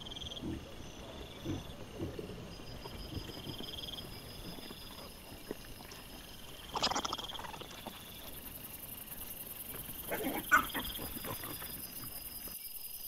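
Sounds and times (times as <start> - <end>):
wild boar grunting: 0.0 - 9.0, 9.6 - 12.2
grunting and squealing scuffle: 10.0 - 12.0.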